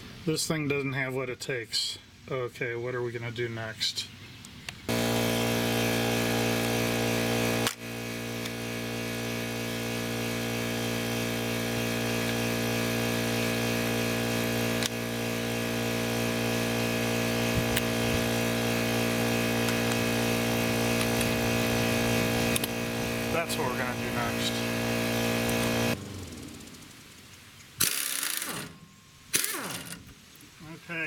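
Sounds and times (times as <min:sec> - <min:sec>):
air compressor motor humming: 0:04.9 - 0:27.0.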